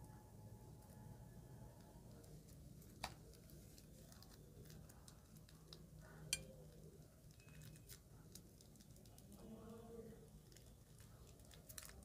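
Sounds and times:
low steady hum: 0:00.0 - 0:12.0
sharp clicks of piping bag: 0:10.5 - 0:12.0.

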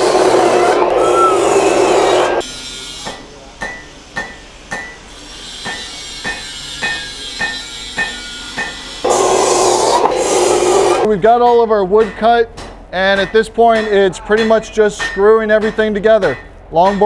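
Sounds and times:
hammer blows on metal: 0:00.0 - 0:11.1
wood sawing: 0:05.3 - 0:11.1.

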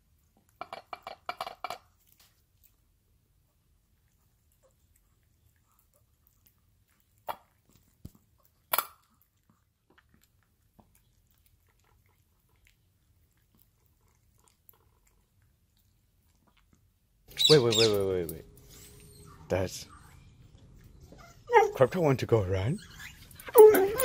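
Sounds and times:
dog chewing and licking: 0:00.0 - 0:24.0.

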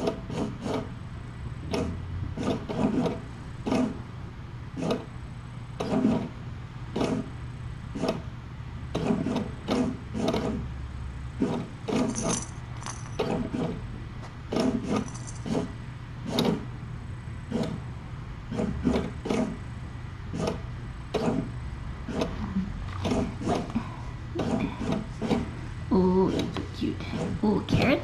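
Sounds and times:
metallic jingle: 0:12.1 - 0:13.3, 0:15.0 - 0:15.5.

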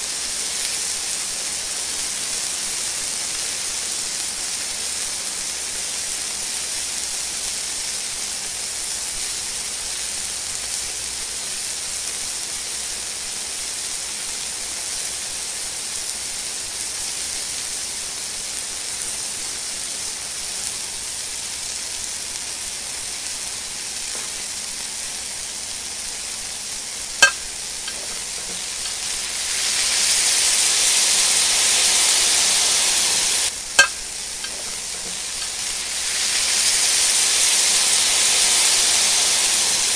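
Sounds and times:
steak sizzling in a pan: 0:00.0 - 0:39.9
fat popping: 0:27.2 - 0:28.9, 0:33.8 - 0:35.5.

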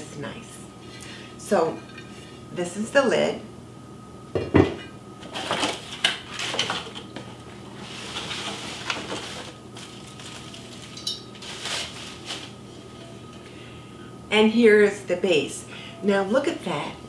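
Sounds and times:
cardboard and plastic wrap rustling: 0:05.2 - 0:12.8.

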